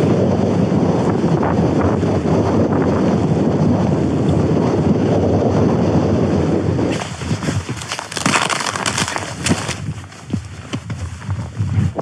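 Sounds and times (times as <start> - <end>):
wind buffeting microphone: 0.0 - 12.0
footsteps crunching on snow: 6.9 - 12.0.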